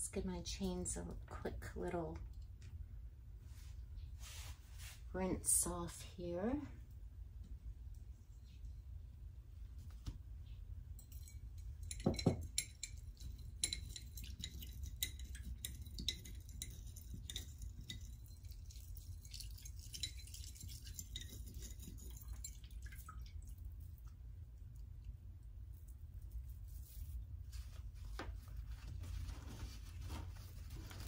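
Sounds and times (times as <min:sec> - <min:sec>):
metal chains clinking in water: 0:11.0 - 0:23.3.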